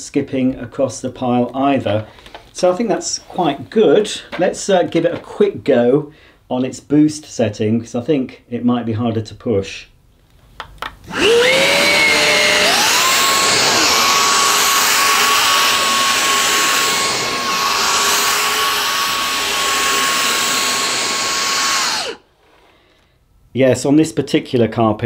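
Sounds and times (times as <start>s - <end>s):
vacuum head on carpet: 11.1s - 22.2s
vacuum motor whining: 11.1s - 22.2s.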